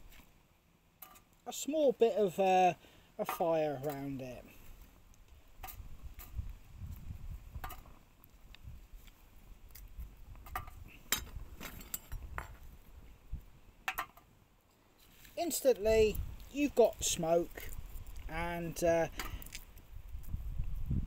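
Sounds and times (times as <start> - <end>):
twigs clicking and snapping: 16.3 - 20.4.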